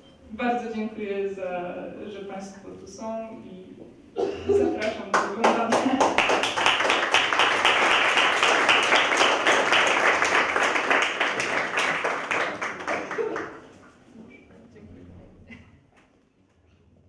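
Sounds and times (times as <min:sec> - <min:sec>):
audience applauding: 0:05.1 - 0:13.8.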